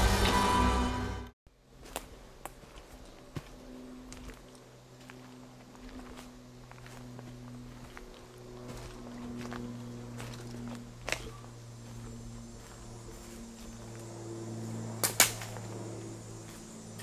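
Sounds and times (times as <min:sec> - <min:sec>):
steady low hum: 0:01.5 - 0:17.0
footsteps through dry leaves: 0:01.7 - 0:14.8
twig snapping: 0:15.0 - 0:15.5.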